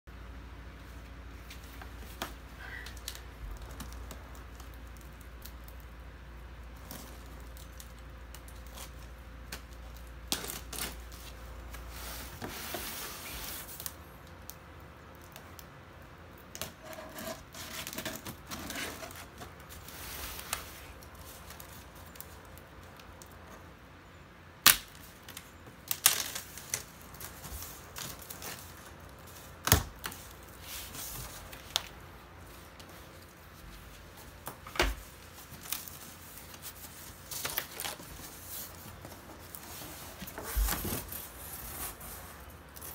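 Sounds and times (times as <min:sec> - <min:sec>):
cardboard rustling: 0:06.8 - 0:14.0, 0:16.7 - 0:22.4, 0:26.0 - 0:42.9
packing tape tearing: 0:06.8 - 0:14.0, 0:24.6 - 0:32.0, 0:35.1 - 0:42.9.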